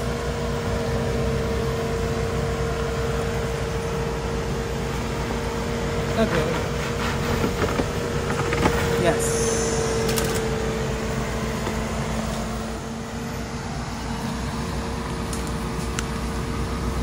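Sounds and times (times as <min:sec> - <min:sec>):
engine running at low revs: 0:00.0 - 0:17.0.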